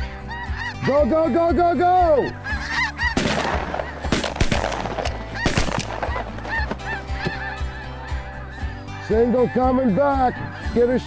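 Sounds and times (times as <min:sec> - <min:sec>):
geese calling: 0:00.0 - 0:11.0
shotguns firing: 0:03.2 - 0:06.8.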